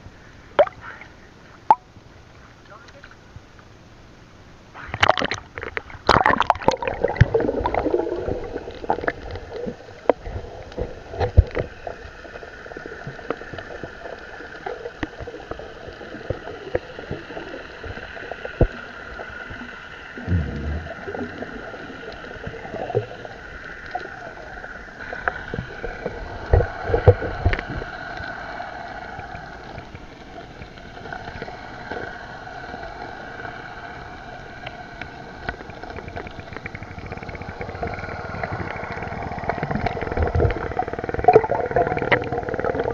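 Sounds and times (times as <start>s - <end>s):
underwater clicks and gurgles: 0.0s - 42.9s
underwater hum: 0.0s - 42.9s
water splashing and sloshing: 4.8s - 15.5s
low thumps: 20.2s - 21.0s.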